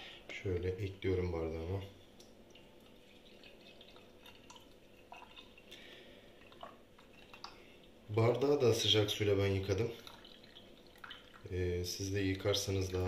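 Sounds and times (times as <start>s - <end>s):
coffee pouring into a mug: 2.2s - 8.2s, 8.9s - 13.0s.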